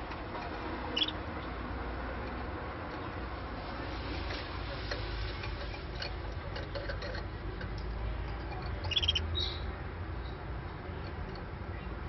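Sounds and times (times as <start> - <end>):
canary chirp: 0.8 - 1.6, 8.5 - 10.5.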